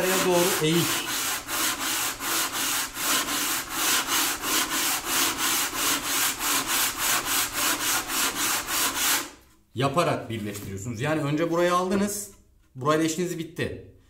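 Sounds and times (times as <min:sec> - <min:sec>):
sanding block rubbing wood: 0:00.0 - 0:09.4.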